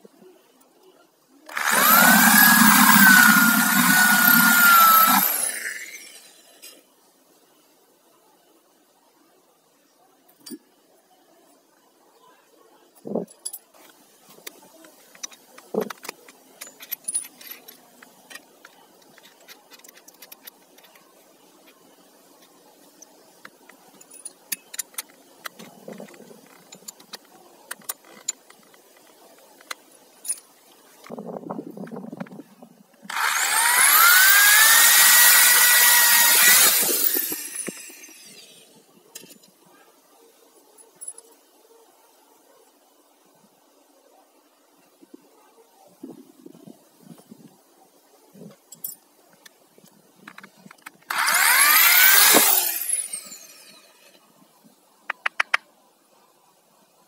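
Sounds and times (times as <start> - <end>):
metallic clicks of drill chuck: 1.5 - 6.0, 33.1 - 38.5, 50.3 - 53.7.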